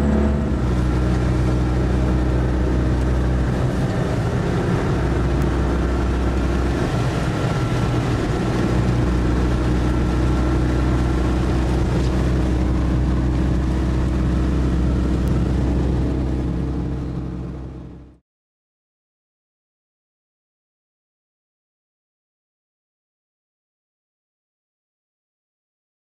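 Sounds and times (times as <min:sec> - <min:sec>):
car engine and road noise: 0:00.0 - 0:18.2.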